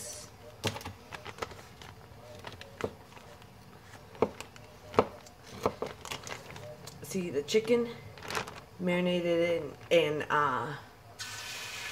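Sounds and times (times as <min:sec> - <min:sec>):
plastic bag rustle: 0:00.6 - 0:04.6, 0:05.4 - 0:06.8, 0:07.5 - 0:10.4.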